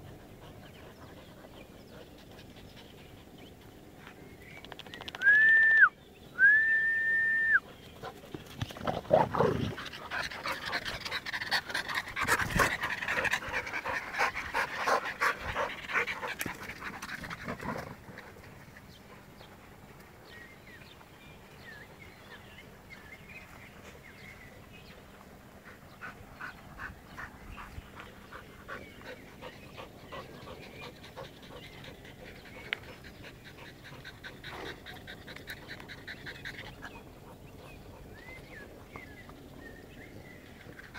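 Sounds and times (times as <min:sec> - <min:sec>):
dogs panting hard: 0:00.0 - 0:04.2, 0:07.6 - 0:20.2, 0:24.8 - 0:39.2, 0:40.2 - 0:40.9
short whistle notes: 0:05.2 - 0:07.6.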